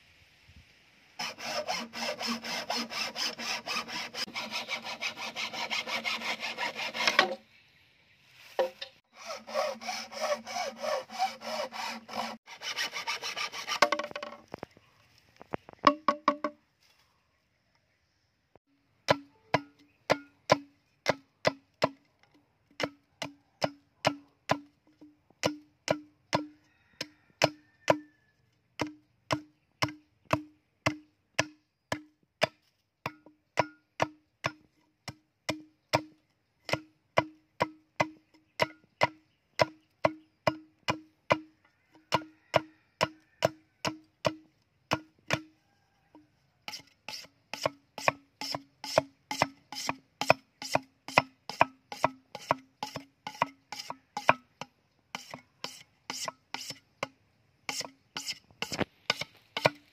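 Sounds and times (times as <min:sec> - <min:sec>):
machete chopping bamboo: 0:01.2 - 0:07.4, 0:13.0 - 0:14.4, 0:15.9 - 0:16.6, 0:19.0 - 0:22.1, 0:22.8 - 0:28.1, 0:28.8 - 0:41.5, 0:42.1 - 0:45.5, 0:46.7 - 0:54.5, 0:55.2 - 0:59.9.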